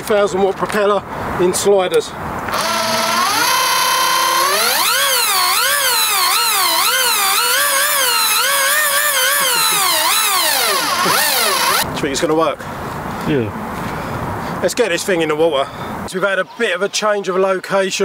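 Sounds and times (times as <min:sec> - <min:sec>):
electric motor whining: 0:02.5 - 0:11.8.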